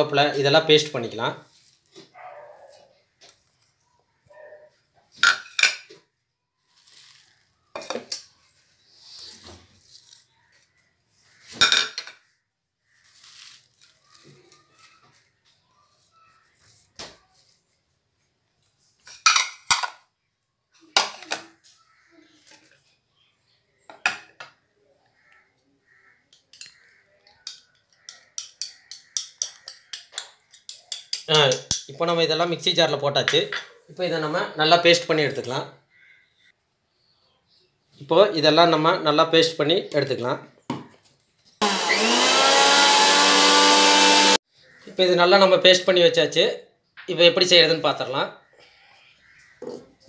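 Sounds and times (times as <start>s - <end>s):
leaves rustling: 6.6s - 7.6s, 9.1s - 11.5s, 12.9s - 15.0s
utensils clinking on steel jar: 27.5s - 32.0s.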